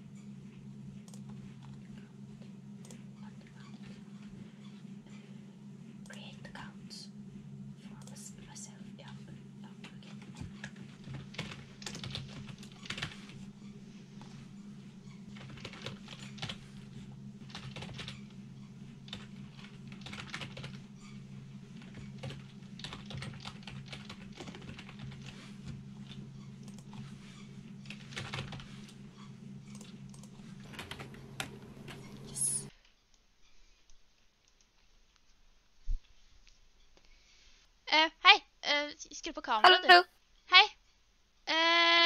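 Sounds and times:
steady low hum: 0:00.0 - 0:32.8
fast typing on keyboard: 0:09.8 - 0:13.4, 0:15.3 - 0:18.4, 0:19.0 - 0:27.0, 0:27.8 - 0:29.0, 0:29.7 - 0:32.6.

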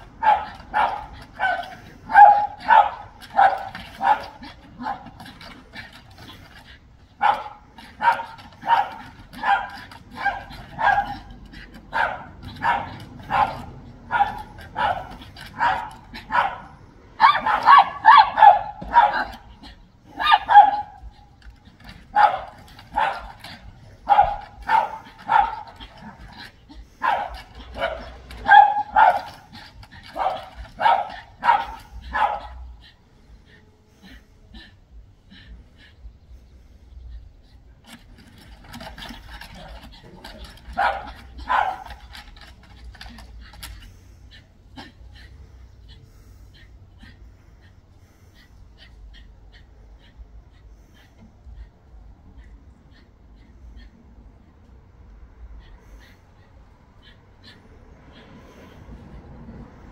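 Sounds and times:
dog barking: 0:00.0 - 0:05.2, 0:07.2 - 0:19.5, 0:20.1 - 0:21.2, 0:22.1 - 0:26.3, 0:27.0 - 0:32.9, 0:40.7 - 0:42.1.

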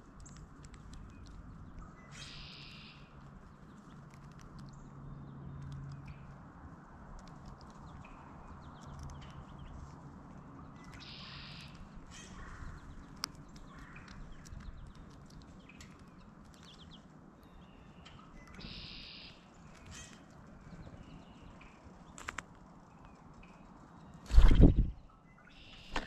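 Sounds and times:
birds tapping and pecking: 0:00.0 - 0:24.7
harsh blue jay calls: 0:02.1 - 0:03.1, 0:10.9 - 0:13.0, 0:17.9 - 0:20.3.

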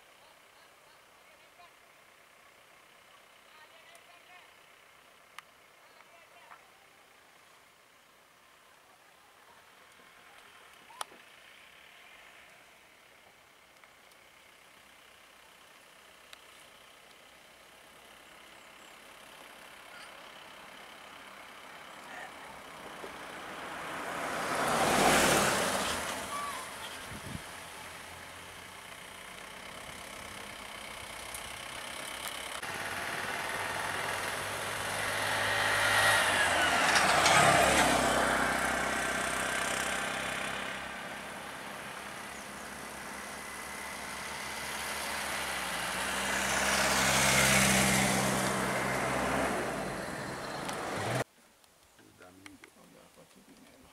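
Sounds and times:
engine hum: 0:09.3 - 0:51.3
vehicles driving past: 0:09.6 - 0:51.3.

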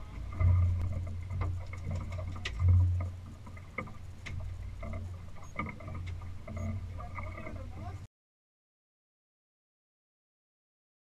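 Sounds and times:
low rumble of wind and water: 0:00.0 - 0:08.1
light clicks and knocks: 0:00.3 - 0:07.6.

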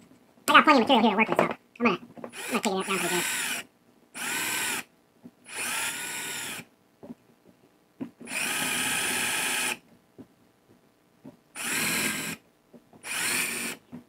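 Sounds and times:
power drill boring into wood: 0:02.3 - 0:03.6, 0:04.2 - 0:04.8, 0:05.5 - 0:06.6, 0:08.2 - 0:09.8, 0:11.6 - 0:12.4, 0:13.0 - 0:13.8.

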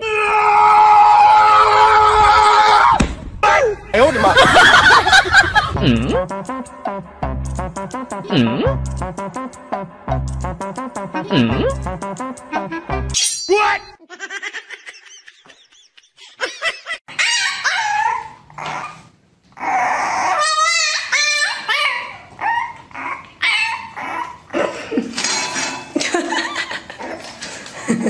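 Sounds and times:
puppy barking and whining: 0:17.1 - 0:24.6.

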